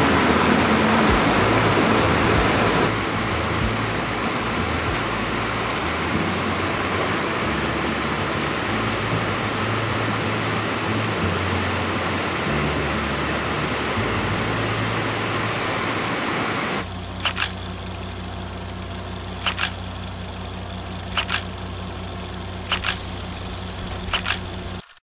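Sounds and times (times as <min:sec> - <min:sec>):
dense rushing noise: 0:00.0 - 0:24.9
steady low hum: 0:00.0 - 0:24.9
sharp quick clicks: 0:16.9 - 0:20.0, 0:20.8 - 0:25.0.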